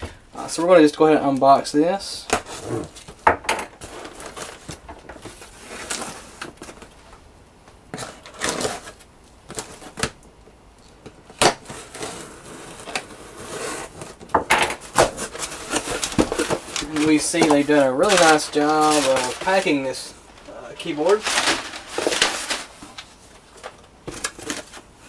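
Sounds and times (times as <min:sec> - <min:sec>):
hands handling cardboard box: 0:03.8 - 0:07.0, 0:10.9 - 0:24.9.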